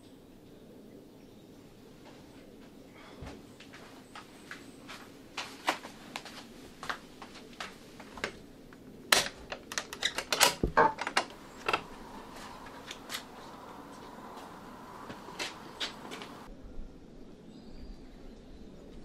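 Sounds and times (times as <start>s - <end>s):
wooden door latch rattling: 9.1s - 11.9s.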